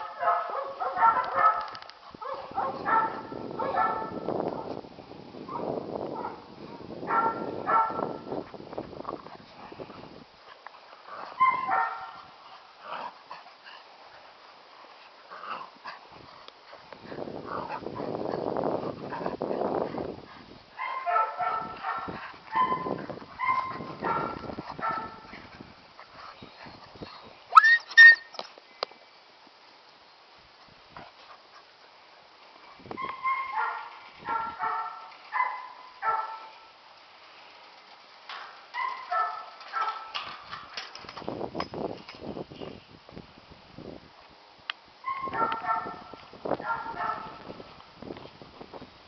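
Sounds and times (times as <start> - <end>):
puppies barking and yipping: 0.0 - 4.2, 11.2 - 12.3, 20.8 - 28.4, 33.0 - 36.5, 38.7 - 40.3, 45.0 - 47.4
puppy yelping: 27.5 - 28.4.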